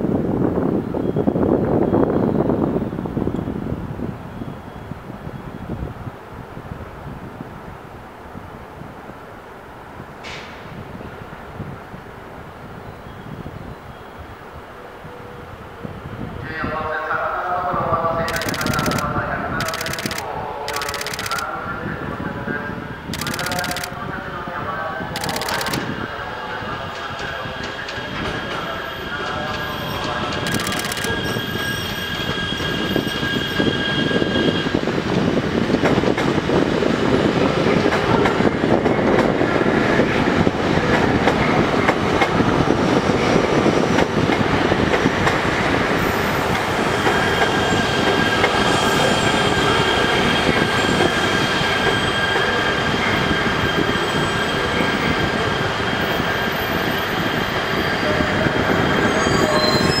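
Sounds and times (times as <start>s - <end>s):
train wheels squealing: 0.8s - 3.4s, 4.2s - 5.7s, 12.8s - 15.5s, 26.5s - 35.4s, 45.9s - 60.0s
train wheels rumbling: 18.1s - 21.6s, 23.1s - 24.1s, 25.0s - 60.0s.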